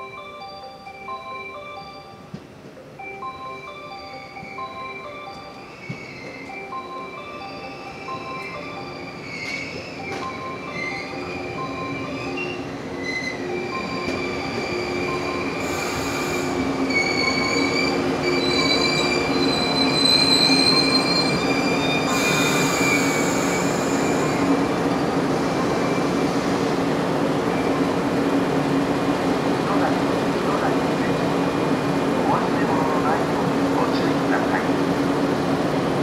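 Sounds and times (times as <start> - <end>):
train equipment humming: 0.0 - 36.0
train brakes squealing: 5.5 - 6.6, 7.5 - 24.7.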